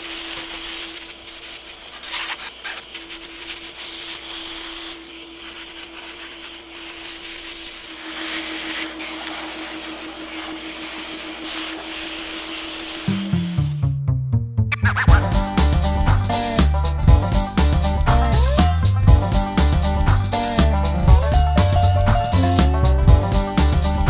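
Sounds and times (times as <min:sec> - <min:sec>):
sanding pad scratching wood: 0:00.0 - 0:13.3
steady hum: 0:00.0 - 0:13.9.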